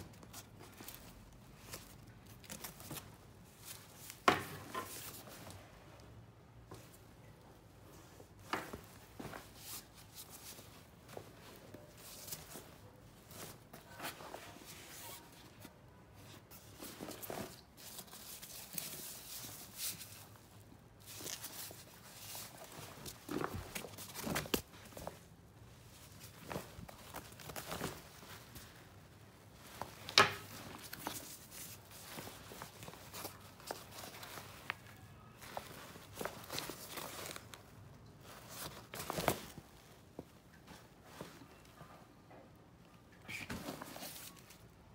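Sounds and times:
nylon bag rustling: 0:16.6 - 0:40.0.

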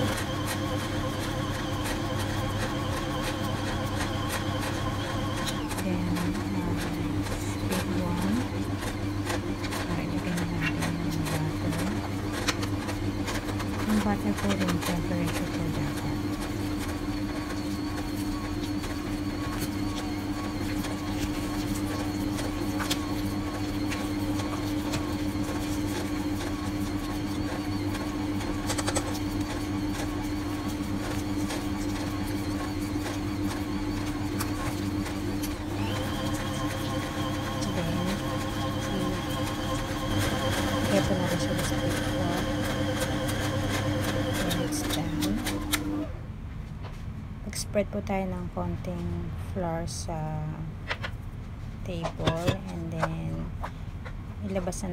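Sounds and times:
stand mixer motor humming: 0:00.0 - 0:46.2.

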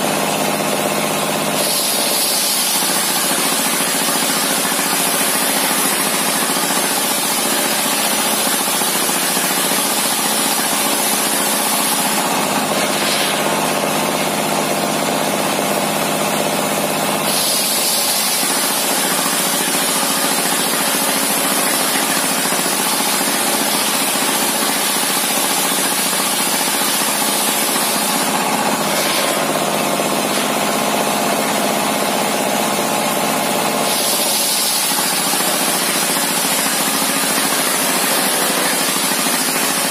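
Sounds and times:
diesel engine running: 0:26.7 - 0:39.9.

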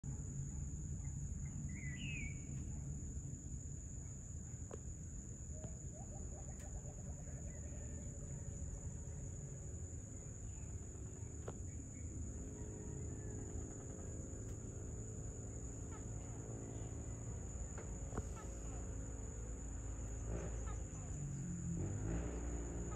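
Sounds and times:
low background rumble: 0:00.0 - 0:21.8
insect chorus buzzing: 0:00.0 - 0:22.9
bird chirp: 0:00.3 - 0:03.0, 0:05.4 - 0:14.1.

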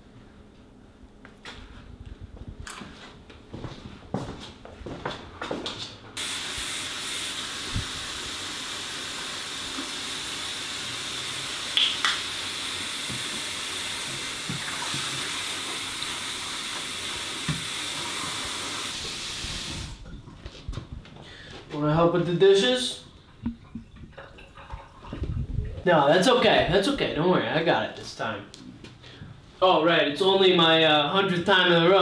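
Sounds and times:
tap water running into sink: 0:06.2 - 0:19.9.

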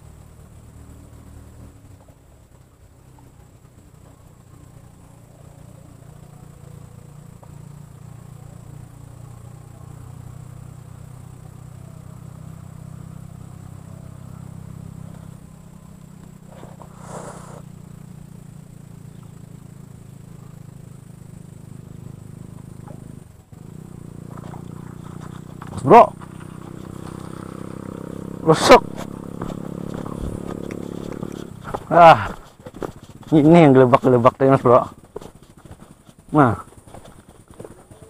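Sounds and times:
engine humming: 0:00.0 - 0:38.0
rustling: 0:16.5 - 0:17.7, 0:28.8 - 0:34.1.

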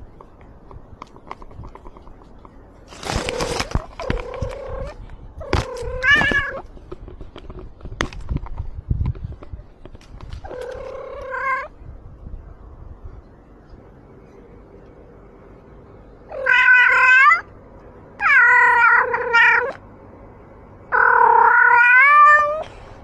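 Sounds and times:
rustling: 0:00.0 - 0:11.4
cat meowing: 0:04.1 - 0:06.6, 0:16.3 - 0:17.5, 0:18.2 - 0:19.8, 0:20.9 - 0:22.7.

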